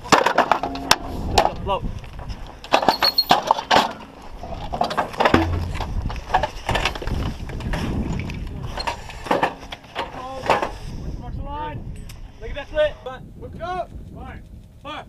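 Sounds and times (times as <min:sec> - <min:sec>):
knocks and clanks of gear: 0:02.2 - 0:10.7.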